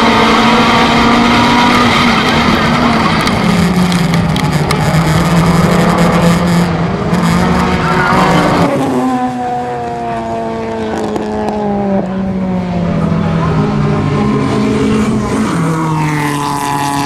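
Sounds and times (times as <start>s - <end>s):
racing car engines: 0.0s - 17.0s.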